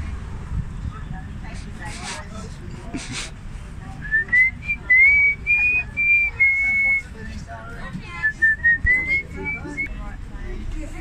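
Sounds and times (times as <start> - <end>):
person whistling a tune: 4.1 - 7.1, 8.3 - 9.9.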